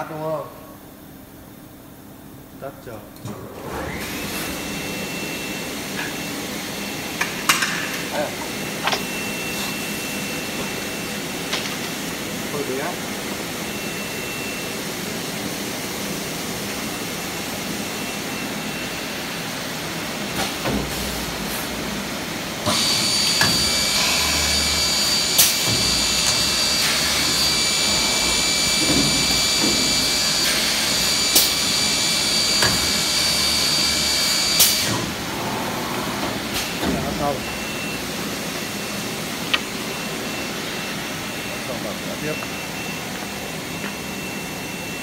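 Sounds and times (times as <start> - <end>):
drilling machine mechanical rush: 22.7 - 38.0.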